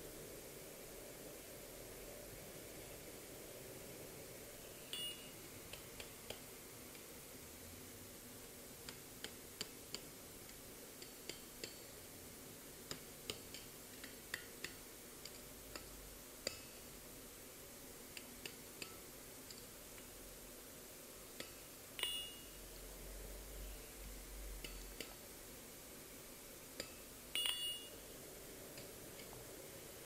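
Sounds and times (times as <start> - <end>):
faint hiss: 0.0 - 30.0
hammer tapping hot steel: 21.4 - 22.6, 26.8 - 28.0.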